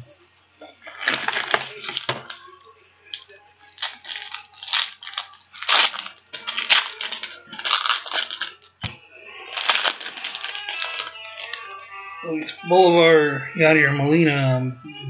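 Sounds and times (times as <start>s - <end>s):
papery rustles and crinkles: 0.8s - 2.5s, 3.2s - 8.7s, 9.4s - 11.9s.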